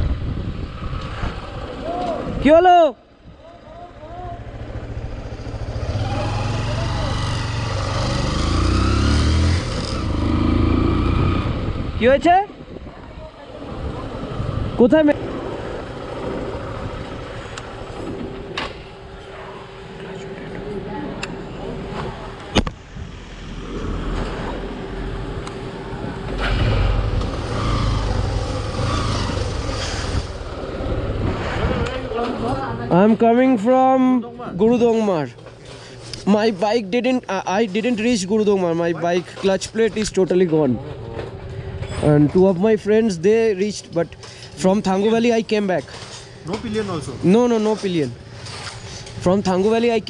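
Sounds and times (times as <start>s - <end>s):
road and wind noise: 0.0s - 50.0s
deep engine rumble: 3.2s - 12.0s
motorcycle engine accelerating: 3.2s - 12.1s, 13.6s - 32.9s
vehicle engine running: 3.4s - 11.8s.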